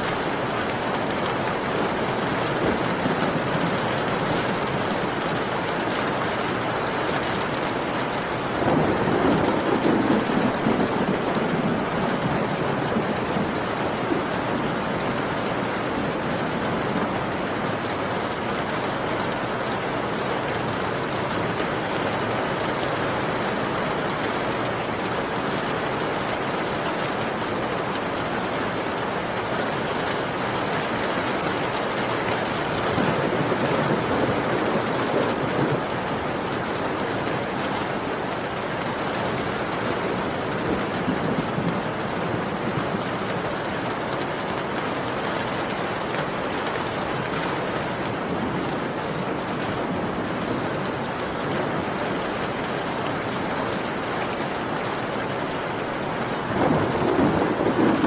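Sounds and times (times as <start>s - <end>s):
steady rain: 0.0s - 58.0s
thunder rumbling: 0.1s - 19.0s, 31.7s - 38.4s, 39.2s - 45.4s, 46.0s - 58.0s.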